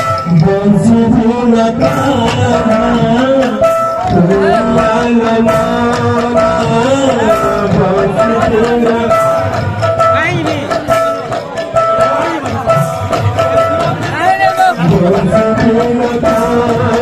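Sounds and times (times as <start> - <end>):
drum and percussion strokes: 0.0 - 17.0
group devotional singing: 0.4 - 9.2, 14.8 - 17.0.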